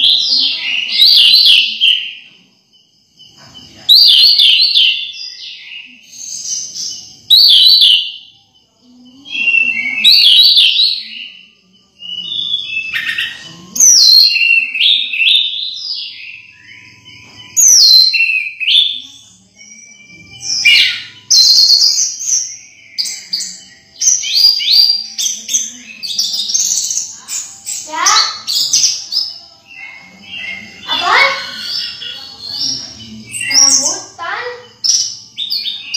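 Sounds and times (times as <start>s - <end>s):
bird singing whistled phrases: 9.3s - 35.9s.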